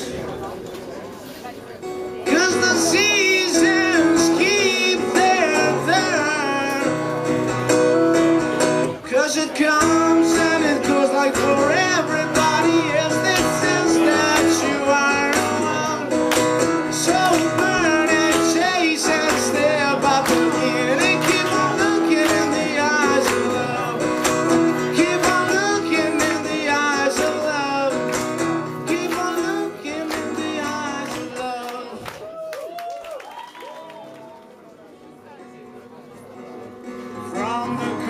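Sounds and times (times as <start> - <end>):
acoustic guitar strumming: 1.8 - 32.0, 36.4 - 38.0
man singing: 2.2 - 7.4, 8.8 - 32.2, 37.1 - 38.0.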